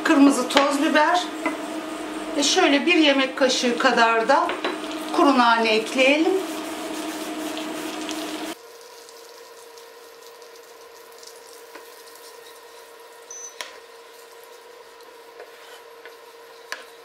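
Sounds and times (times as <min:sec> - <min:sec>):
faint hum: 0:00.0 - 0:08.6
butter sizzling in a pan: 0:00.2 - 0:17.0.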